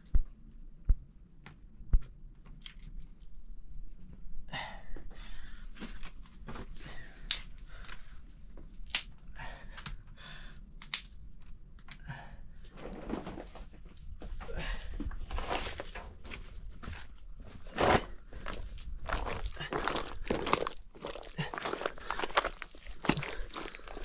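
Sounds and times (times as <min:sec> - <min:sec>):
dry twigs rustling and snapping: 0:02.4 - 0:04.2, 0:07.2 - 0:10.1, 0:10.8 - 0:12.1, 0:18.5 - 0:24.0
sharp cracks of sticks: 0:10.8 - 0:11.1.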